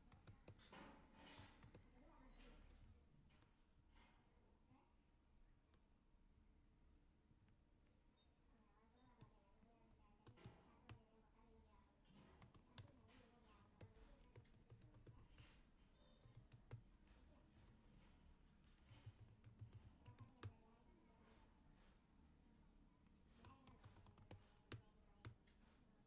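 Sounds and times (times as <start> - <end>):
keyboard typing: 0.0 - 2.8, 10.1 - 11.0, 12.1 - 20.6, 23.3 - 25.8.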